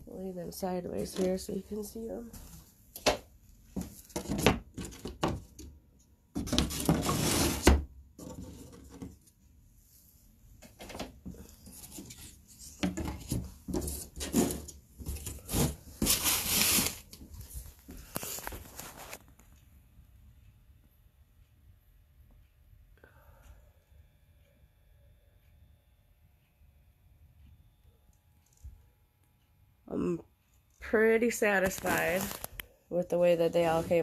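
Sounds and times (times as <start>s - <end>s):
wood scraping on workbench: 6.4s - 9.1s.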